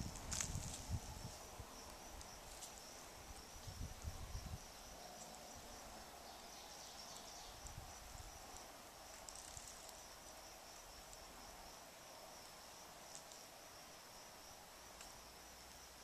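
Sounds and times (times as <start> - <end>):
wind buffeting microphone: 0.0 - 2.4, 3.2 - 4.9
insects trilling: 0.0 - 16.0.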